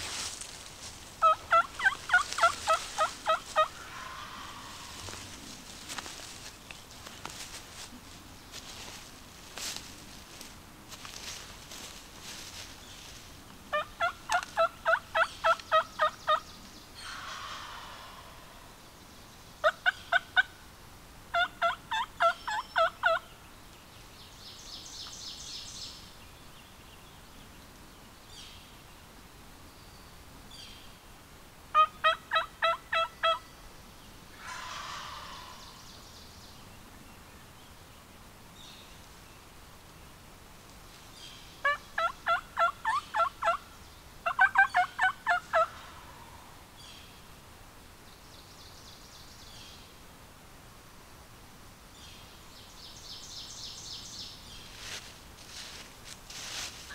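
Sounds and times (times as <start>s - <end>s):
wild turkey yelping: 1.2s - 5.3s, 13.7s - 16.4s, 17.0s - 18.5s, 21.3s - 23.2s, 31.7s - 33.4s, 34.3s - 35.8s, 41.6s - 43.6s, 44.2s - 46.5s
distant turkey gobbles: 1.2s - 6.4s, 17.0s - 18.7s, 34.3s - 35.8s.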